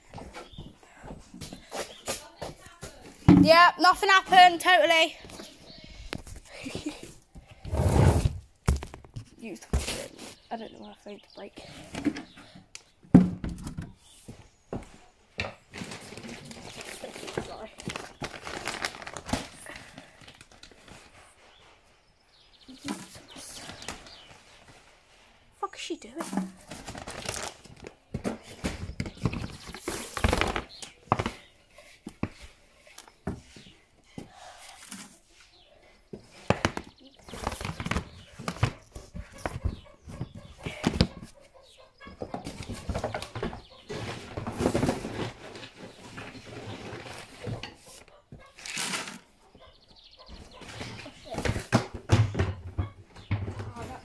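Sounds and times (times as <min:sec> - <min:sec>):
chickens clucking: 0:38.2 - 0:44.6.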